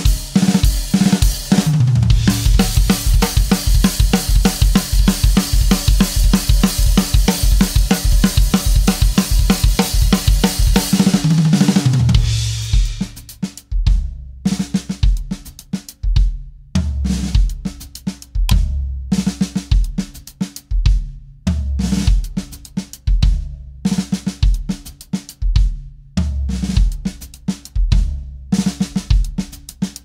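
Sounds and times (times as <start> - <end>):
drum kit playing: 0.0 - 30.0.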